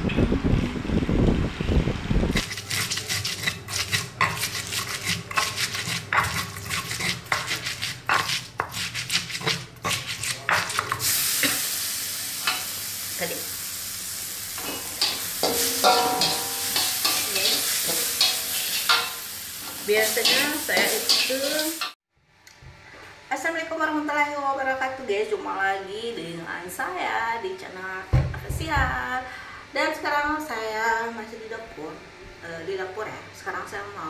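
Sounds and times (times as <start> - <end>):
low rumbling noise: 0.0 - 2.4
oil sizzling in a wok: 2.3 - 22.0
metal spatula scraping a pan: 2.4 - 11.6, 14.6 - 22.0
stone pestle pounding in mortar: 2.5 - 11.0.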